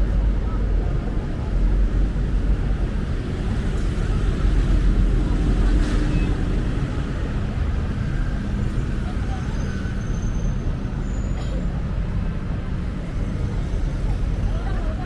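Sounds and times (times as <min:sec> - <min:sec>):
city road traffic rumble: 0:00.0 - 0:15.0.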